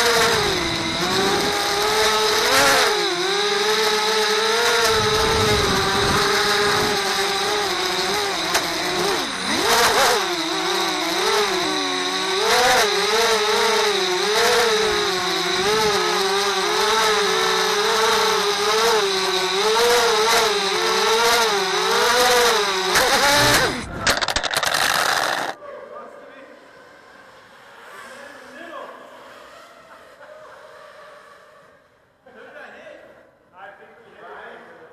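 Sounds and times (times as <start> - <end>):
drone motors whining: 0.0 - 25.6.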